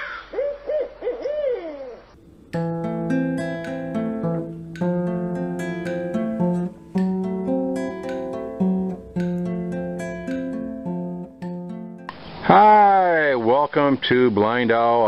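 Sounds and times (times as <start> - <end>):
acoustic guitar playing: 2.2 - 12.6.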